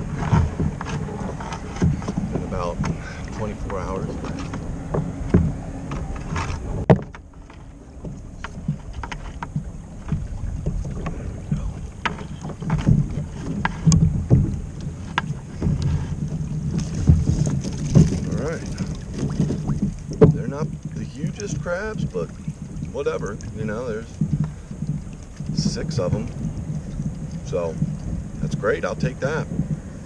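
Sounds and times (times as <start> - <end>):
knocks against kayak: 0.0 - 22.8
wind on microphone: 0.0 - 30.0.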